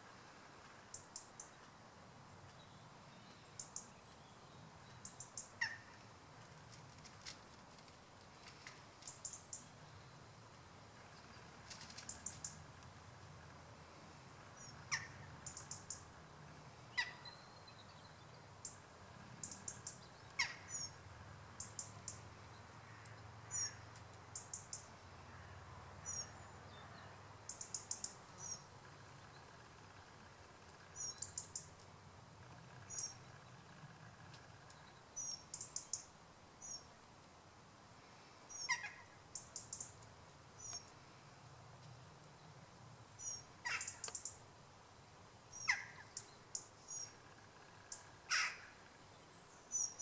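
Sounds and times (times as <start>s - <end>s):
faint low rumble: 0.0s - 36.1s
small birds chirping: 0.0s - 37.1s, 38.0s - 44.5s, 45.4s - 50.0s.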